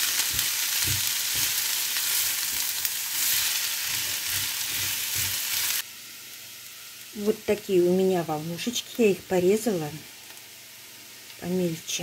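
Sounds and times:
spatula stirring in a pan: 0:00.0 - 0:05.8
potatoes sizzling in a frying pan: 0:00.0 - 0:12.0.

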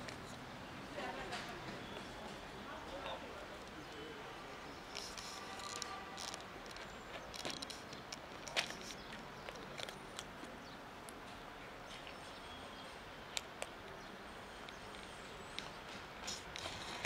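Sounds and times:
cat crunching dry kibble: 0:05.0 - 0:10.3.

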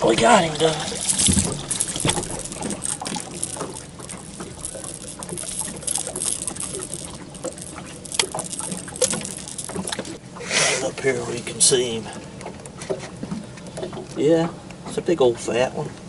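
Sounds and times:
water dripping: 0:00.0 - 0:10.2
light knocks and patters: 0:00.6 - 0:10.2.

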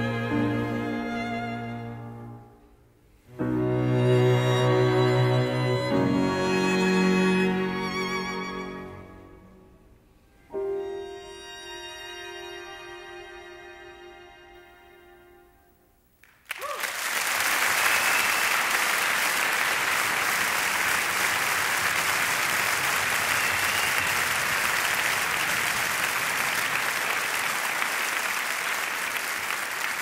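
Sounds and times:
audience applause: 0:16.2 - 0:30.0.

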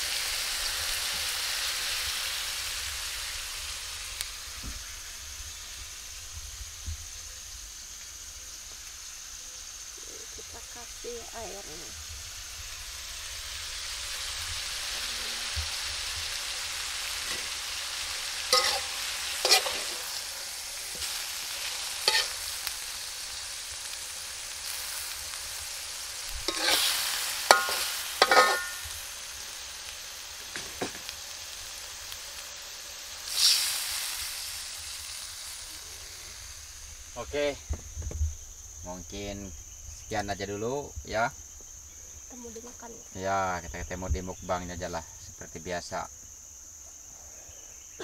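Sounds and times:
fish sizzling in a pan: 0:00.0 - 0:48.0
utensil scraping and clinking on pan: 0:18.5 - 0:20.2, 0:22.0 - 0:22.4, 0:26.5 - 0:28.9.

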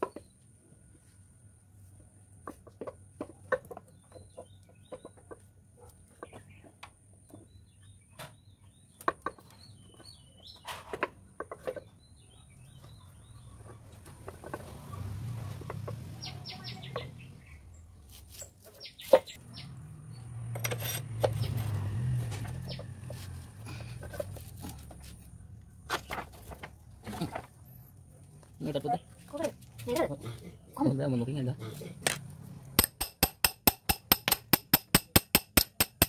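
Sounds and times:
bird calls: 0:06.1 - 0:19.8.

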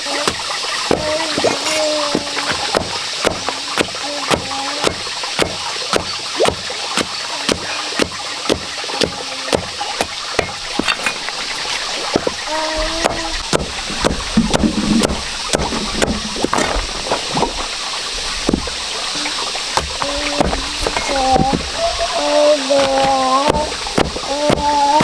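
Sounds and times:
knife chopping: 0:00.1 - 0:11.3, 0:13.0 - 0:16.8, 0:22.8 - 0:24.9.

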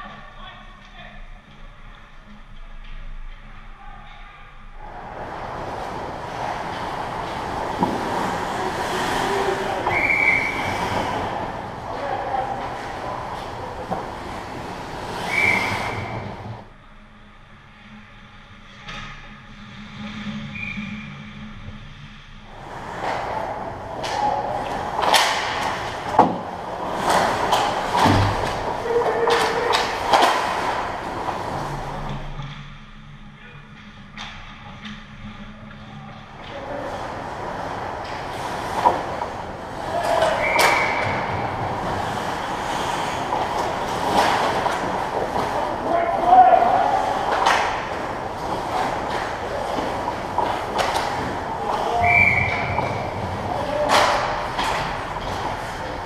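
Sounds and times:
skates and sticks scraping ice: 0:01.5 - 0:16.7, 0:19.6 - 0:32.8, 0:33.7 - 0:56.0
hockey puck hits: 0:05.5 - 0:16.6, 0:22.9 - 0:32.2, 0:36.4 - 0:56.0.

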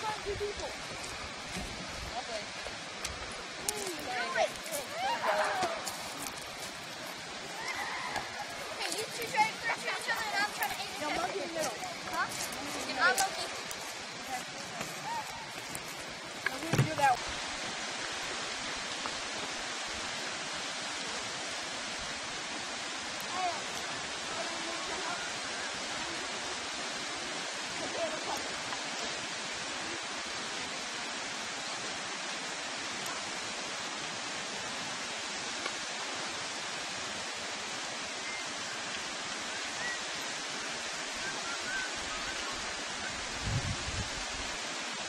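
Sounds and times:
flowing river water: 0:00.0 - 0:45.0.

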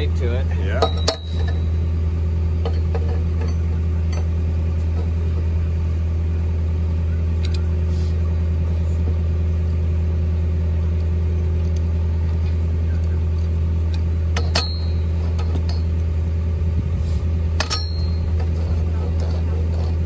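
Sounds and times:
engine humming: 0:00.0 - 0:20.0
sharp metallic clinks: 0:00.7 - 0:02.0, 0:14.3 - 0:16.0, 0:17.5 - 0:18.5.

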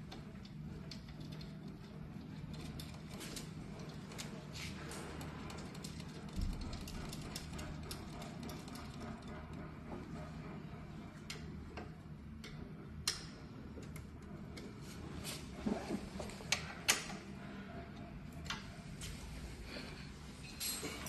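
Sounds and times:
steady low hum: 0:00.0 - 0:21.0
small metal clicks and taps: 0:11.3 - 0:14.7.

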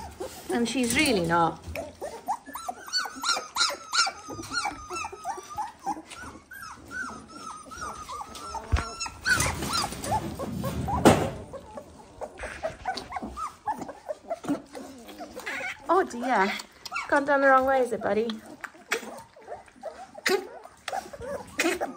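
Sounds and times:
puppies squealing and whining: 0:00.0 - 0:21.9
rustling and clatter: 0:06.1 - 0:16.2.

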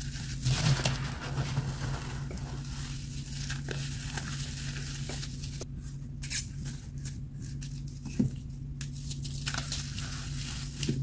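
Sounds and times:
low hum: 0:00.4 - 0:05.8.

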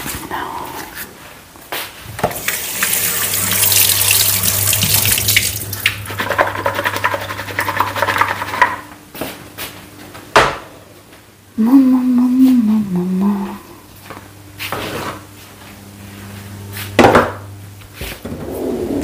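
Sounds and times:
tap running water into sink: 0:02.2 - 0:08.8.

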